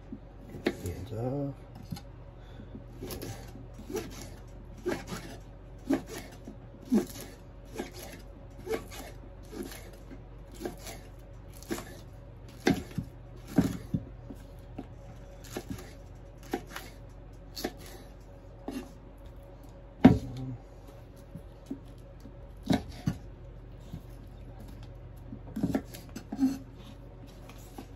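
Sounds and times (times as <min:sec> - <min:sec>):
knife chopping on wooden board: 0:00.5 - 0:00.9, 0:03.0 - 0:11.0, 0:11.6 - 0:14.1, 0:15.4 - 0:18.0, 0:22.6 - 0:23.2, 0:25.5 - 0:26.6.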